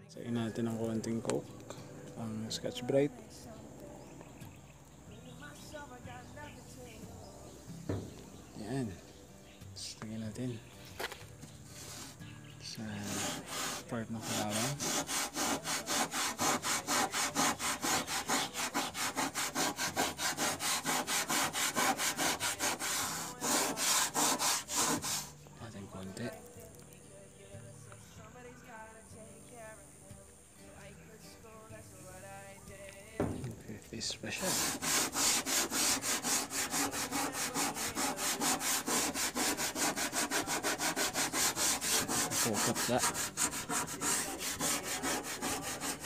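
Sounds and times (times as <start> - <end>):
scouring pad scrubbing metal: 12.9 - 25.3, 34.3 - 46.0.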